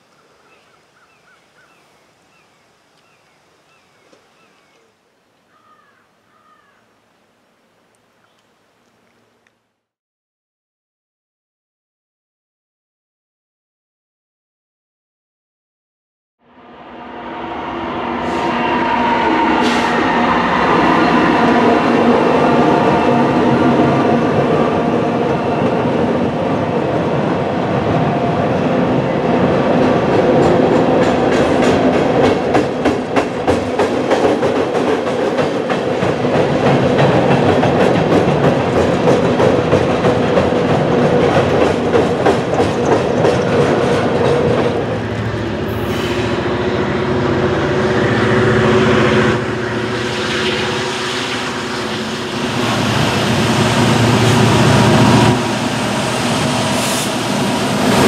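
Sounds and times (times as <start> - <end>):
train rumbling over steel trestle: 16.6 - 58.0
wheels clacking over rail joints: 29.8 - 45.8.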